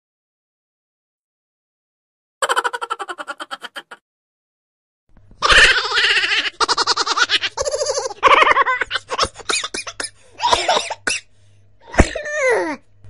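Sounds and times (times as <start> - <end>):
high-pitched laughter: 2.4 - 4.0, 5.4 - 10.8.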